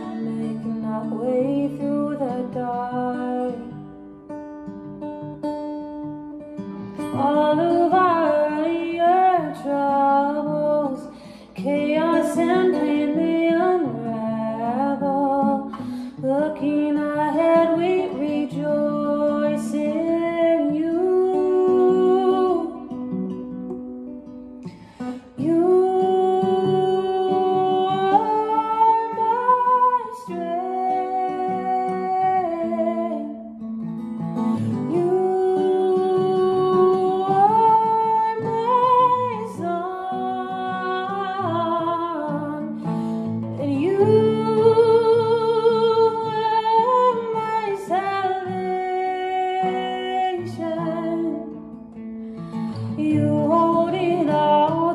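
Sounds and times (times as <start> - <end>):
woman singing worship song: 0.0 - 3.8, 7.0 - 22.9, 25.2 - 33.4, 34.6 - 51.6, 52.6 - 54.9
acoustic guitar: 0.0 - 54.9.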